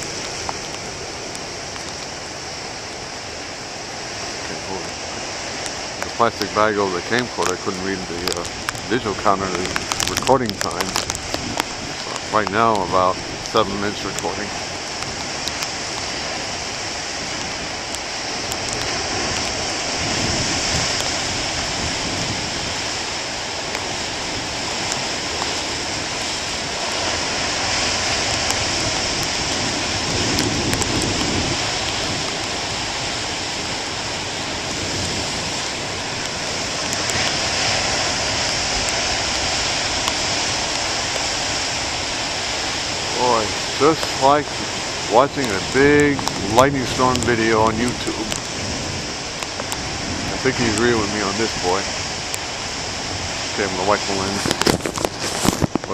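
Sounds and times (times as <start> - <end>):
heavy waves breaking on rocks: 0.0 - 55.9.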